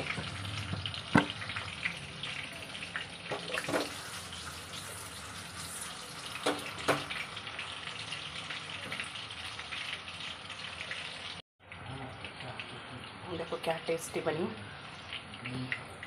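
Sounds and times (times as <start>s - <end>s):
food sizzling in oil: 0.0s - 11.4s.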